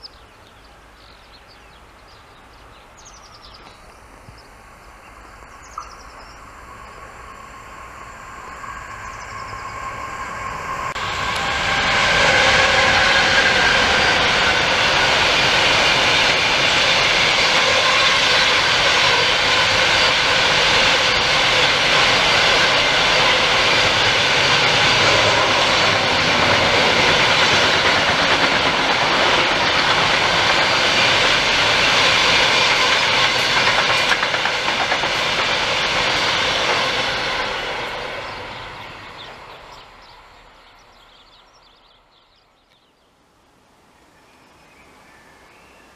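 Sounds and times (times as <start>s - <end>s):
freight train wheels rumbling: 0.0s - 42.4s.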